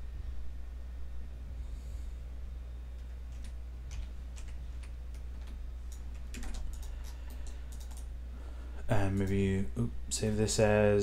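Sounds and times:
low electrical hum: 0.0s - 11.0s
keyboard and mouse clicks: 3.0s - 8.1s.

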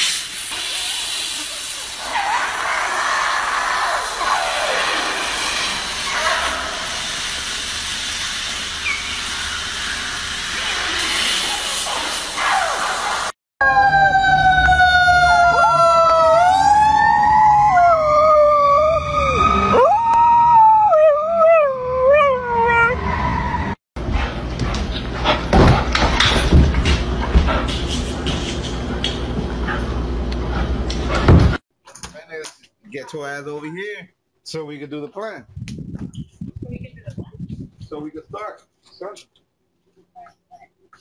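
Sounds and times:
air hissing: 0.0s - 2.6s
dog howling: 13.6s - 23.8s
siren wailing: 13.6s - 23.8s.

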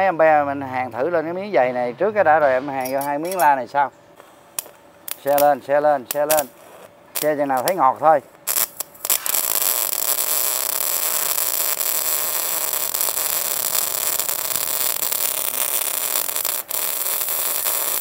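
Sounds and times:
welding arc hissing: 4.2s - 18.0s.

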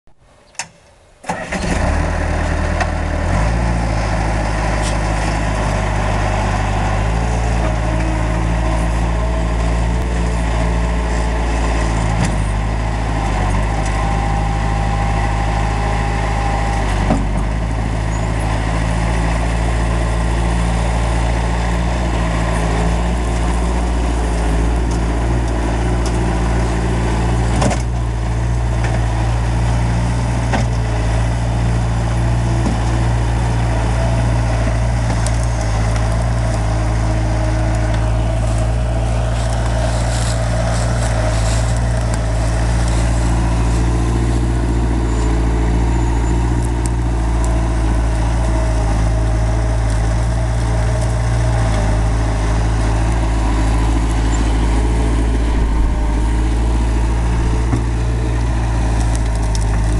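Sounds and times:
diesel engine starting and running: 0.1s - 59.9s
hydraulic whine: 53.4s - 59.4s.

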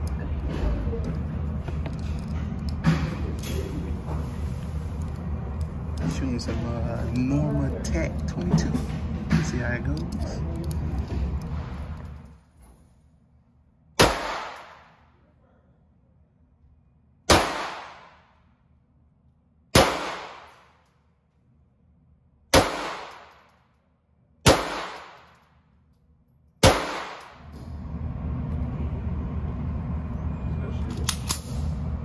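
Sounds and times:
steady low rumble: 0.0s - 32.0s
gunshots echoing: 14.0s - 14.9s, 17.3s - 18.3s, 19.8s - 20.7s, 22.5s - 23.5s, 24.4s - 25.3s, 26.6s - 27.5s.

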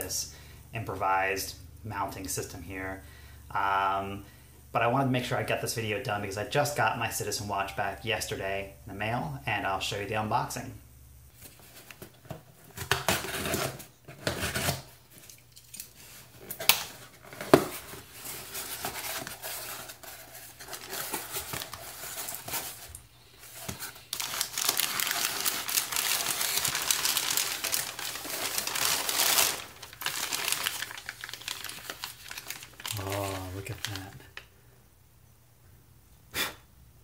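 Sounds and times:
packing paper crinkling: 11.3s - 34.5s
packing tape tearing: 12.7s - 34.2s
cardboard flaps rustling: 16.0s - 34.2s.

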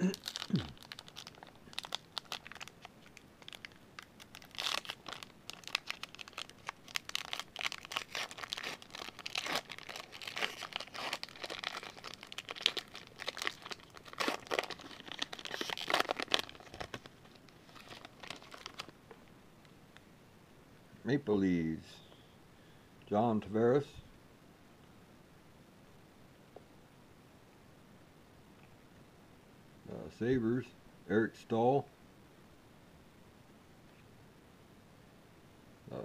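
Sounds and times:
foil wrapper crinkling and tearing: 0.0s - 19.0s.

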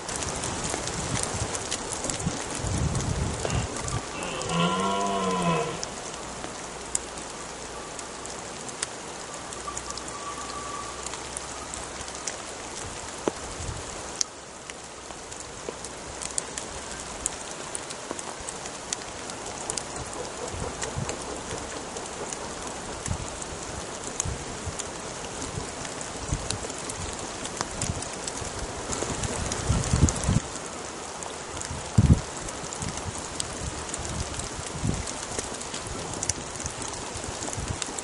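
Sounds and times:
rain pattering on vegetation: 0.0s - 38.0s
deer stag roaring: 3.4s - 6.0s.

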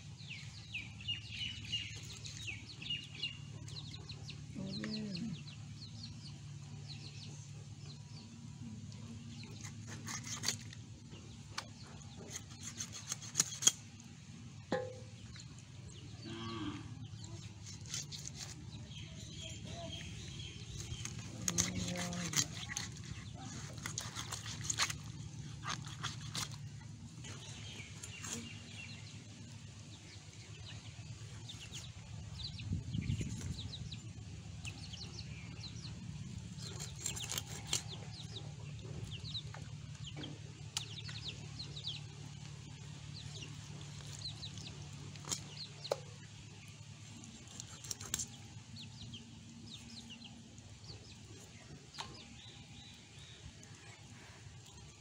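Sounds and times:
chickens clucking and chirping: 0.0s - 55.0s
steady low hum: 0.0s - 55.0s
blade cutting raw chicken: 9.6s - 10.8s, 11.6s - 14.0s, 17.4s - 18.7s, 20.7s - 26.6s, 36.6s - 38.0s, 47.5s - 48.4s.

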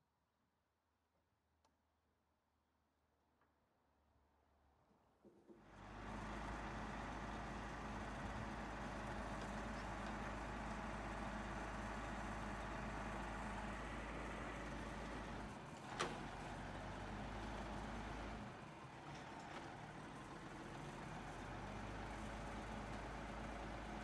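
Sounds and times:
truck engine running: 5.7s - 24.0s.

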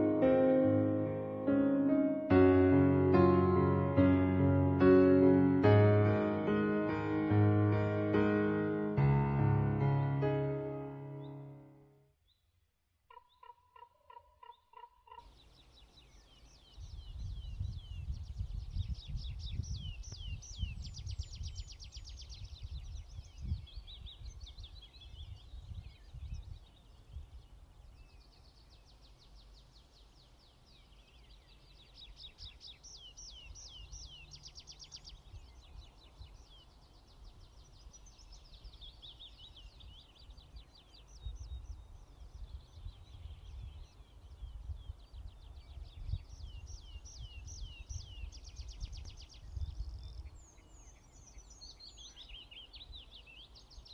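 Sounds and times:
small birds twittering: 13.1s - 53.9s
wind rumbling on microphone: 16.0s - 30.0s, 30.7s - 53.9s.

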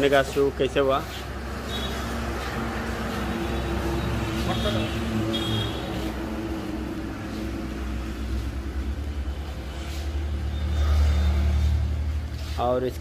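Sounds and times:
vehicle engine rumble: 0.0s - 13.0s.

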